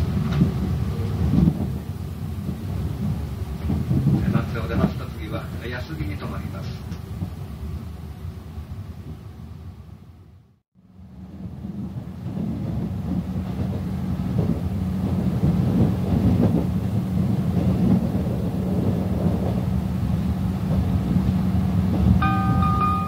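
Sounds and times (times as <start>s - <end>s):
train wheels rumbling on rail: 0.0s - 23.0s
electronic chime melody: 22.2s - 23.0s.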